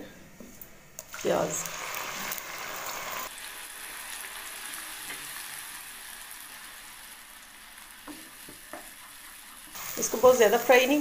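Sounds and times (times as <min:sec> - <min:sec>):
onion paste sizzling in oil: 0:01.0 - 0:11.0.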